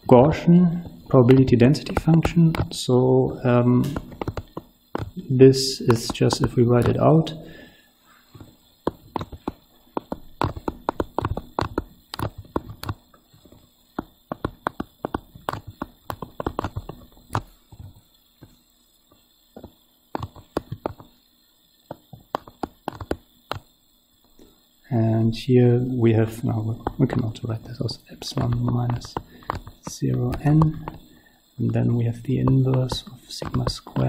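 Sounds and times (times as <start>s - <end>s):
stylus tapping on tablet screen: 0.8s - 2.8s, 3.8s - 5.2s, 5.9s - 7.0s, 8.4s - 18.6s, 19.6s - 21.1s, 21.9s - 23.7s, 26.7s - 31.1s, 32.4s - 34.0s.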